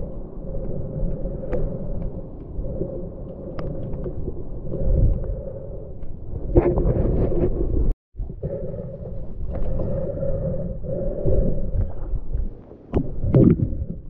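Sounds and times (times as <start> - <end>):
small underwater clicks: 0.0 - 6.7
underwater river rumble: 0.0 - 14.0.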